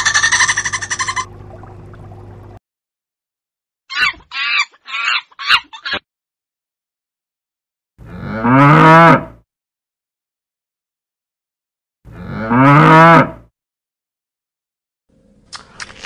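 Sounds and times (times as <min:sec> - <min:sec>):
monkey high calls: 0:00.0 - 0:01.3, 0:03.9 - 0:06.0
calf mooing: 0:08.1 - 0:09.3, 0:12.2 - 0:13.4.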